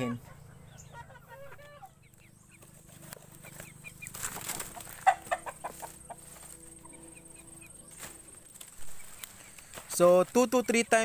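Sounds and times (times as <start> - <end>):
chickens clucking: 0.0 - 11.0
chicks peeping: 0.0 - 11.0
rustle of dry leaves: 2.9 - 11.0.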